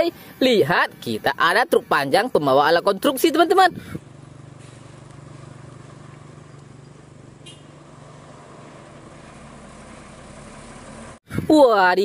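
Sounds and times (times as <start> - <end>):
diesel truck engine running: 3.4 - 11.2.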